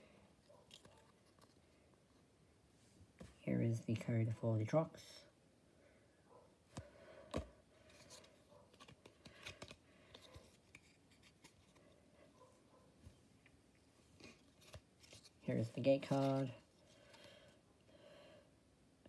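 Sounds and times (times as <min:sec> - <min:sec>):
cards and packaging rustling: 0:00.4 - 0:02.2, 0:06.7 - 0:12.4, 0:14.1 - 0:17.6.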